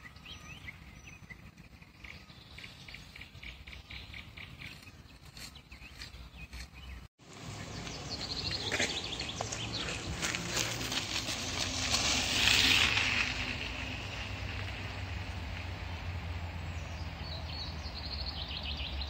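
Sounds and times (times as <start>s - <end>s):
birds chirping: 0.0s - 11.0s, 15.8s - 19.0s
running footsteps on gravel: 7.7s - 12.4s.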